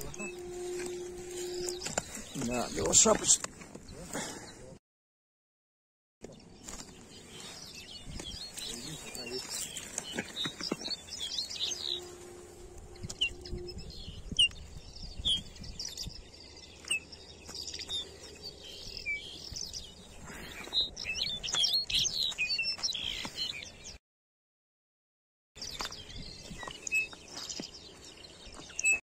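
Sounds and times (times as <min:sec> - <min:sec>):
songbirds chirping and whistling: 0:00.0 - 0:04.7, 0:06.2 - 0:24.0, 0:25.6 - 0:29.0.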